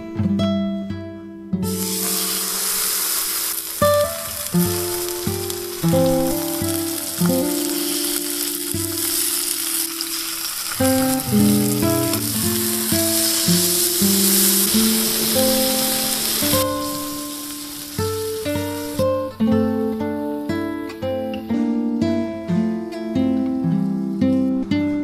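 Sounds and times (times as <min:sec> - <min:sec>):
soft plucked guitar music: 0:00.0 - 0:25.0
steak sizzling in a skillet: 0:01.7 - 0:21.1.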